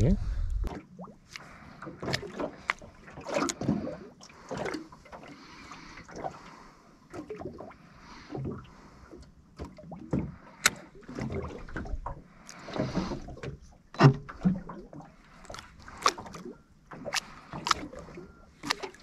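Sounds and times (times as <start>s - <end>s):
knocks and clicks from boat: 0.0s - 19.0s
water lapping against boat hull: 0.0s - 19.0s.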